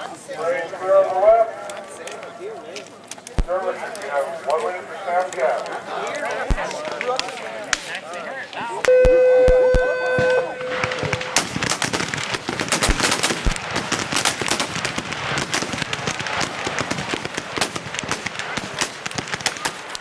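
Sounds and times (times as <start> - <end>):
muskets firing: 3.3 - 4.2, 5.3 - 8.1, 8.8 - 20.0
steady signal tone: 8.9 - 11.4.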